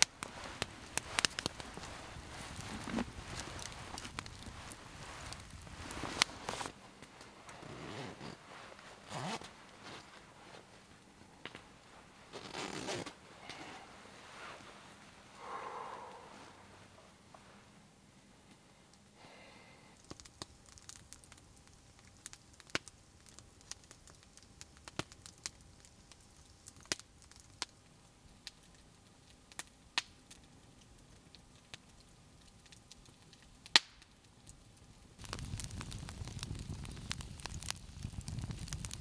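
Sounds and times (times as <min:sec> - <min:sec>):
campfire crackling and popping: 0:00.0 - 0:16.5, 0:18.4 - 0:39.0.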